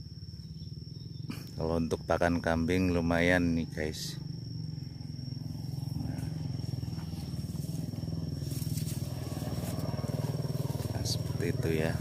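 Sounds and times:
insect high-pitched call: 0.0 - 12.0
small engine running: 4.1 - 12.0.

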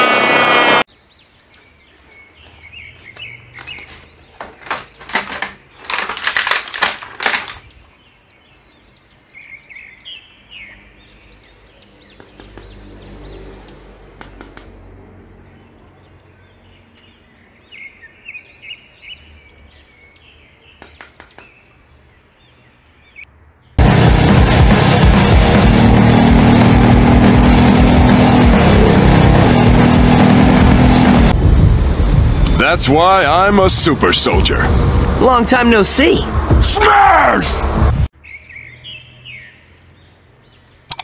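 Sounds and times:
birds chirping: 0.9 - 6.2, 7.4 - 14.2, 15.0 - 23.8, 38.1 - 41.0
plastic clicks and crinkles: 4.4 - 7.6.

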